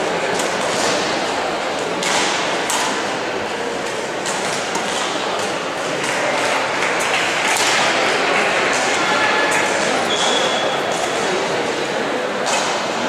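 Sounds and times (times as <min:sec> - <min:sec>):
sports hall noise: 0:00.0 - 0:13.0
rackets hitting shuttlecocks: 0:01.8 - 0:03.2, 0:03.8 - 0:11.5, 0:12.4 - 0:13.0.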